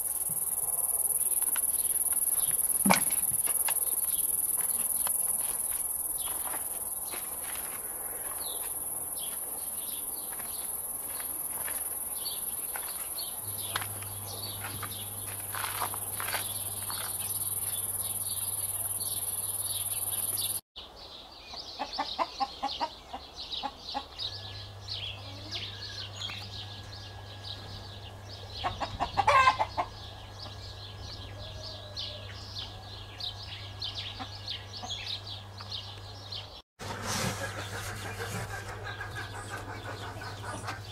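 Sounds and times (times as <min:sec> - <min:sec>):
hens clucking: 0:28.6 - 0:30.0, 0:36.9 - 0:40.9.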